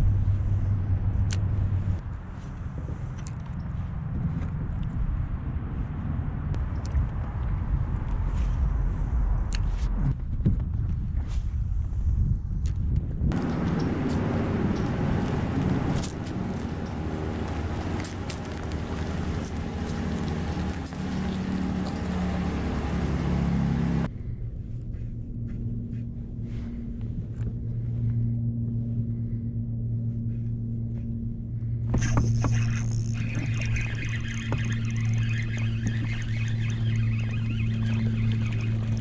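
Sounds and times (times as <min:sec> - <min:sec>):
low hum: 0:00.0 - 0:39.0
truck engine revving: 0:13.3 - 0:24.1.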